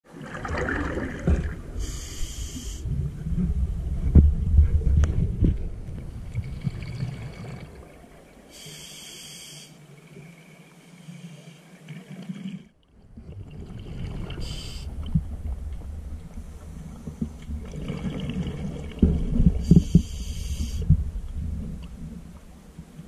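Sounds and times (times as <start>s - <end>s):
exhaled bubbles rumbling: 0.1s - 2.1s, 2.8s - 8.5s, 12.0s - 23.0s
regulator inhale hiss: 1.8s - 2.9s, 8.5s - 9.9s, 14.4s - 15.0s, 19.6s - 21.0s.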